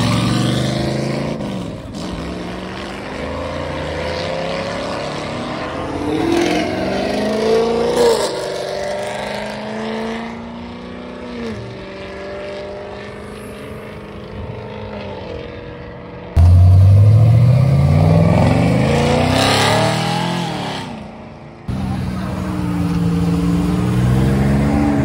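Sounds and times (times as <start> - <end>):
car engine accelerating hard: 0.0 - 25.0.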